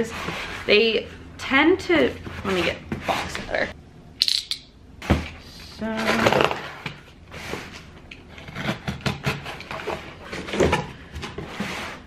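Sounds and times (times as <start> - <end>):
cardboard scraping and rustling: 5.1 - 12.0.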